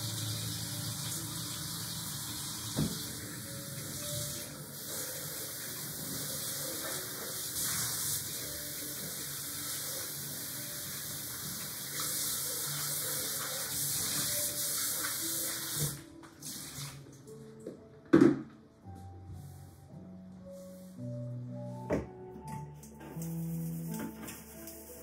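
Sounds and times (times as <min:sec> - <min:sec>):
tap water into steel sink: 0:02.7 - 0:03.2.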